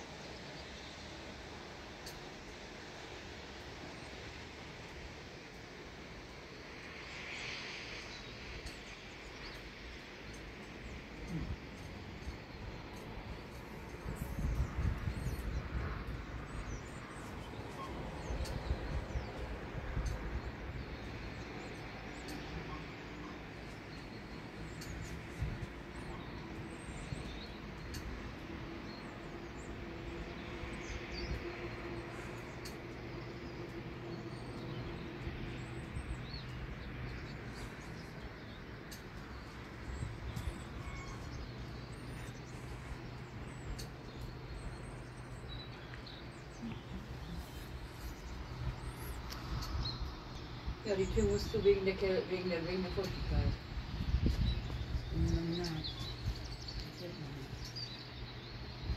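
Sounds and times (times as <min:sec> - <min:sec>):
faint bird chirps: 0:40.0 - 0:50.6.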